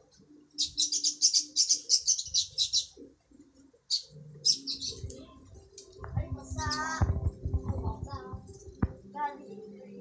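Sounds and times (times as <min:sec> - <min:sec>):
small bird chirping: 0:00.5 - 0:03.1, 0:03.9 - 0:05.1.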